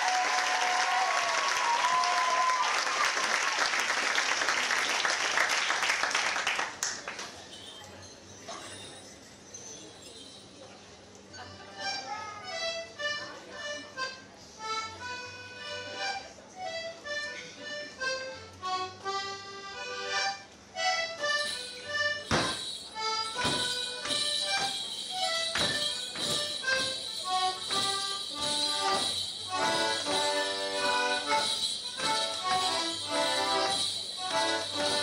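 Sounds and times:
leg bells jingling: 0:07.4 - 0:10.9, 0:21.0 - 0:35.0
squeezebox jig tune: 0:20.8 - 0:35.0
feet landing on floor: 0:22.2 - 0:22.8, 0:23.4 - 0:26.9.

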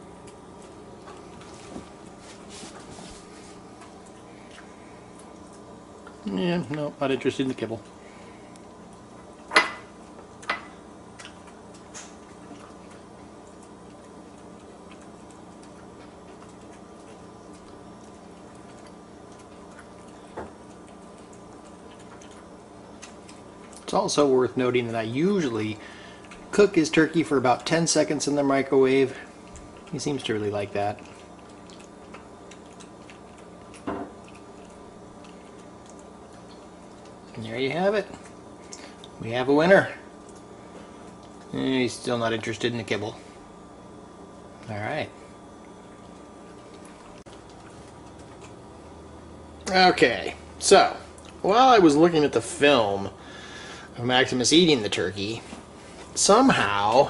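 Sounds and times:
low steady hum: 0:00.0 - 0:57.0
dog eating from a dish: 0:00.1 - 0:43.2.

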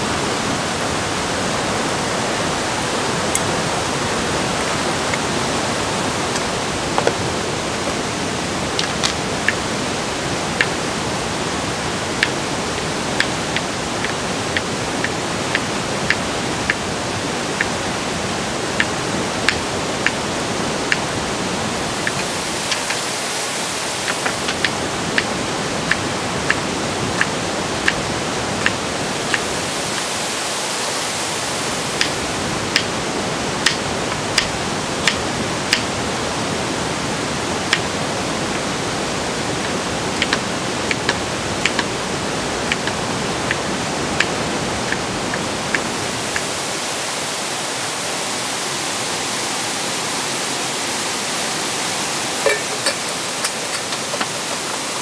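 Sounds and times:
steady rushing hiss: 0:00.0 - 0:55.0.

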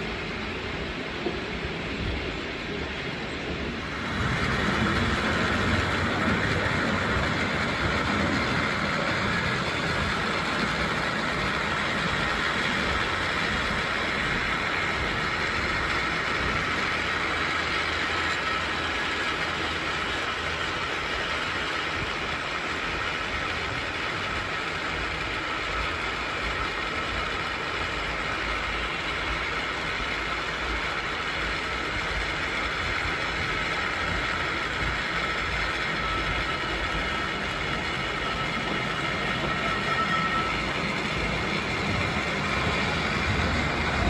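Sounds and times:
funicular car rumbling on rails: 0:00.0 - 0:44.0.

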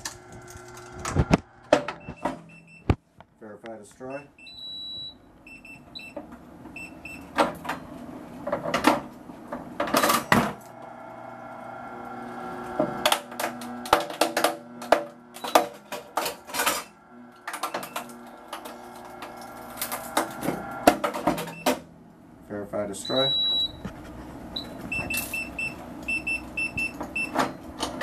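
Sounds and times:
motor hum: 0:05.4 - 0:22.6
mechanical clanks and knocks: 0:07.3 - 0:10.6, 0:12.8 - 0:21.9.

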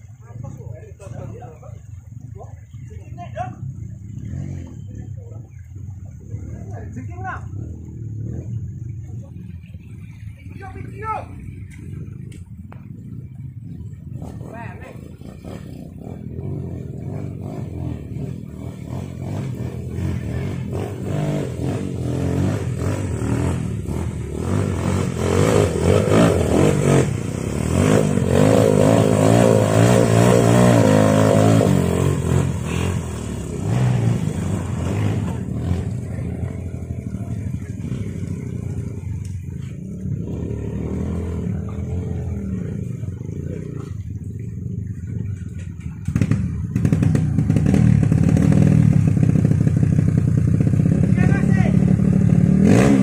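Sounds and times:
dirt bike engine revving: 0:03.6 - 0:05.1, 0:13.0 - 0:53.0
river water rushing: 0:05.4 - 0:50.2.

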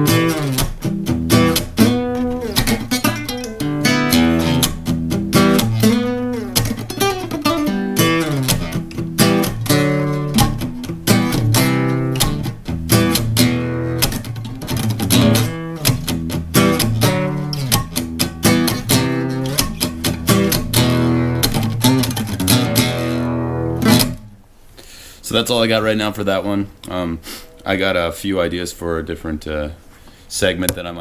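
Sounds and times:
acoustic guitar picking: 0:00.0 - 0:24.4.

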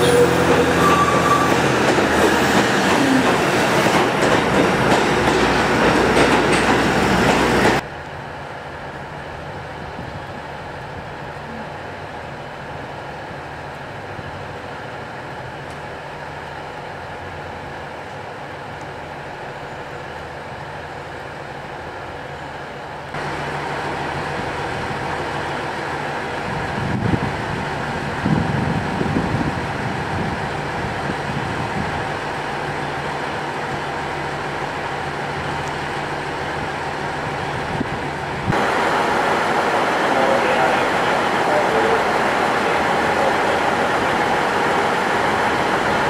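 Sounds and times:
diesel railcar engine idling: 0:33.7 - 0:46.0.

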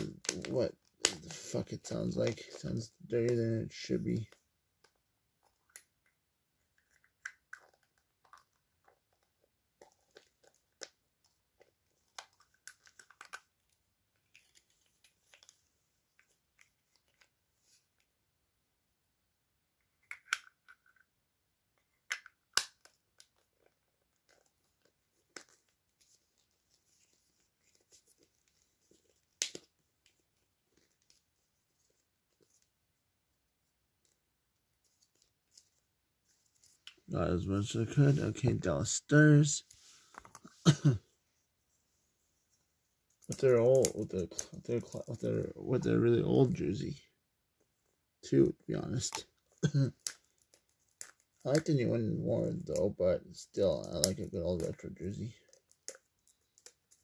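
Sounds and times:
fingers handling plastic toy: 0:04.1 - 0:18.1, 0:19.8 - 0:21.1, 0:21.8 - 0:32.7, 0:48.6 - 0:57.0.

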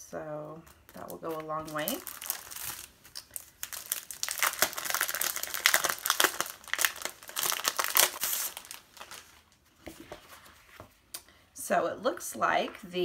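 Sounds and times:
plastic packaging crinkling: 0:00.8 - 0:09.7.

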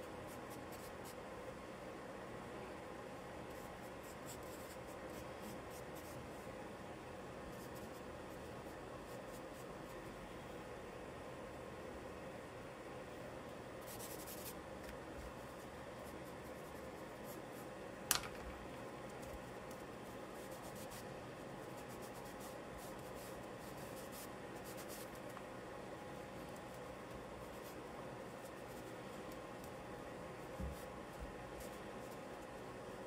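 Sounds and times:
charcoal scratching on paper: 0:13.8 - 0:14.6, 0:20.1 - 0:25.3.

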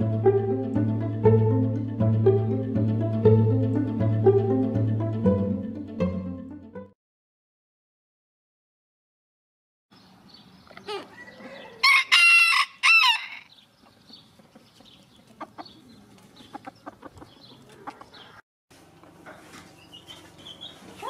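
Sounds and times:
rooster crowing: 0:10.9 - 0:13.5
hens clucking softly: 0:13.8 - 0:18.4.

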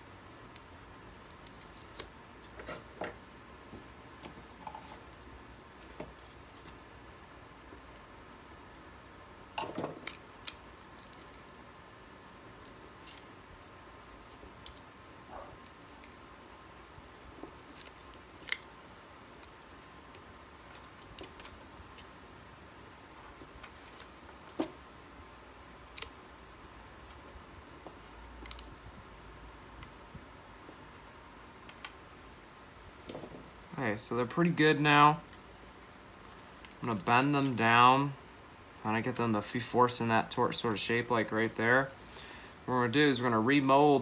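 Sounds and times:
hands handling wires and tape: 0:14.2 - 0:14.9, 0:17.3 - 0:22.2, 0:23.1 - 0:26.2.

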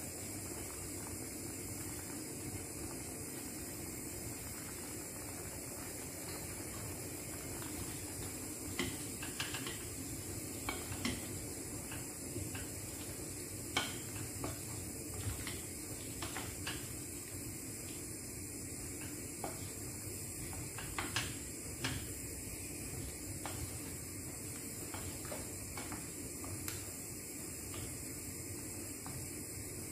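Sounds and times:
food sizzling hiss: 0:00.0 - 0:29.9.

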